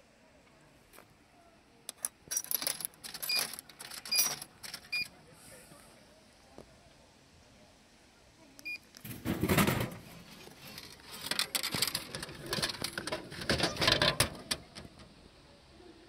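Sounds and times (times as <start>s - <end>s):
vending machine beep: 3.1s - 5.1s
plastic flap clattering: 11.2s - 15.0s.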